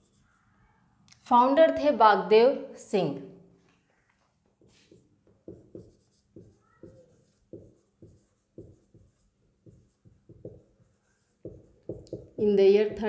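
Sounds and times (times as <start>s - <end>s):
marker writing on whiteboard: 0.0s - 0.6s, 4.0s - 13.0s.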